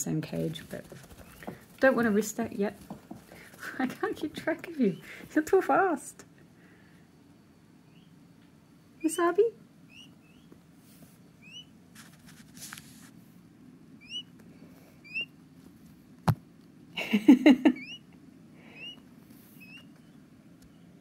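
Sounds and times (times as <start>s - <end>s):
peachick peeping: 0.5s - 2.7s, 7.8s - 10.6s, 11.3s - 11.8s, 14.0s - 15.4s, 17.6s - 21.0s.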